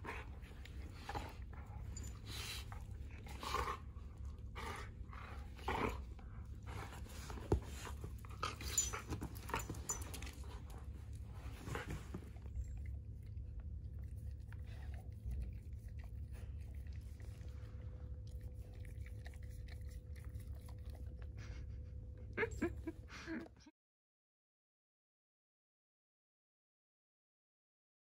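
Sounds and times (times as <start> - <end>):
dogs breathing hard: 0.0 - 13.0.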